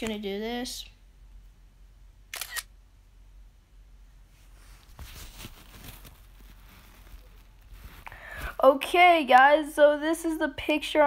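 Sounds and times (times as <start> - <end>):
low steady hum: 0.0 - 11.0
faint rustling: 4.2 - 8.8.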